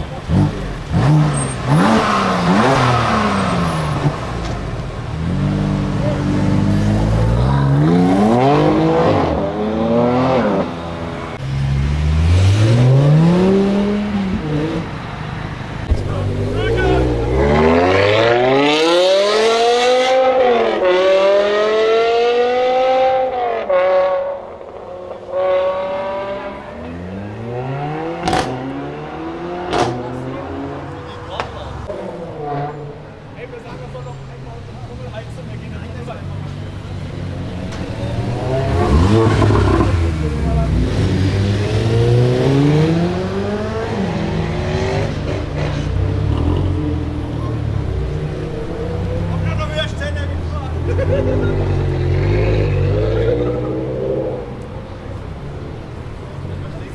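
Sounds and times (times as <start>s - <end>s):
second car engine: 0.0s - 56.9s
car engine revving hard: 0.2s - 14.9s, 16.2s - 31.1s, 37.5s - 49.4s, 50.7s - 54.6s.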